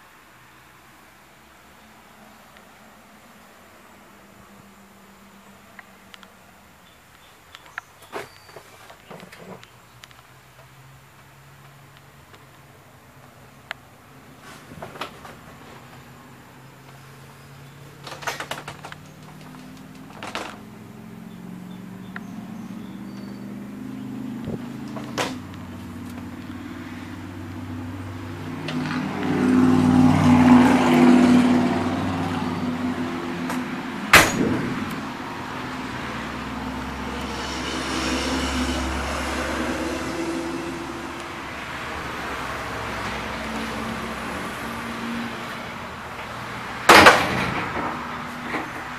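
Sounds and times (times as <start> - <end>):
motor vehicle running: 14.2 - 48.9
sharp knocks and clicks: 18.0 - 20.7.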